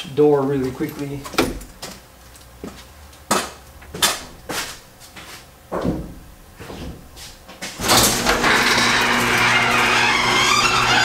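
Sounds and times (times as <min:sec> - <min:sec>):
garage door opening: 0:00.7 - 0:02.0, 0:07.7 - 0:11.0.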